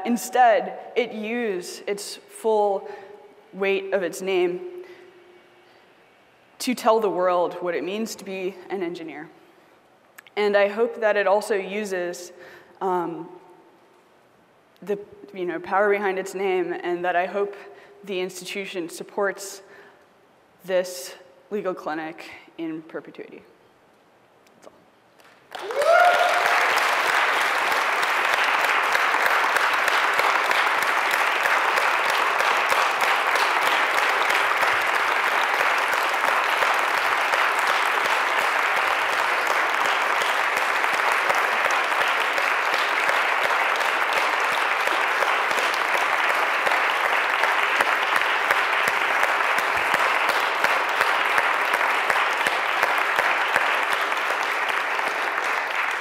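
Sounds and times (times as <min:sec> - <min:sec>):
audience applauding: 0:25.2 - 0:56.0.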